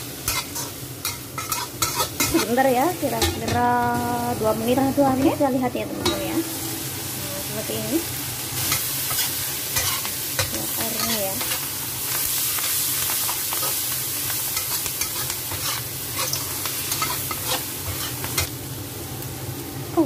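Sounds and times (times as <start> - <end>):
food sizzling in a wok: 0.0 - 20.0
metal spatula scraping pan: 0.3 - 2.6, 5.2 - 7.0.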